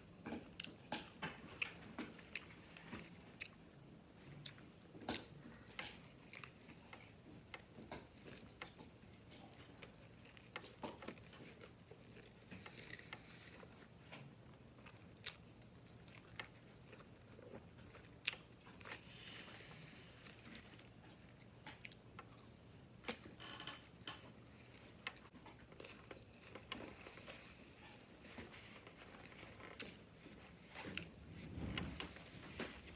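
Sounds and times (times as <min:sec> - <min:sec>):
chewing with mouth smacks: 0:00.2 - 0:03.6, 0:04.2 - 0:13.8, 0:14.8 - 0:19.1, 0:20.2 - 0:23.3.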